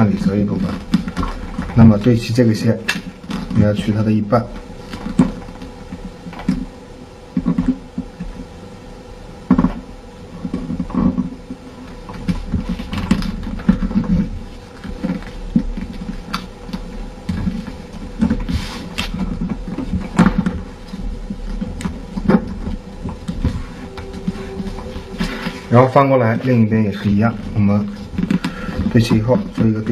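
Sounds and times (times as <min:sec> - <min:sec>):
paper crackling: 0:12.0 - 0:29.9
paper rustling and crinkling: 0:12.0 - 0:29.9.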